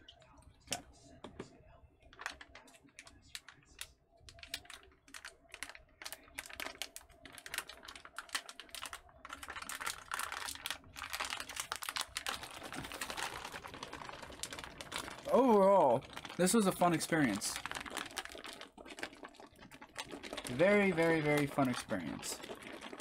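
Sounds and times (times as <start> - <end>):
plastic and foil pouch crinkling: 2.1 - 23.0.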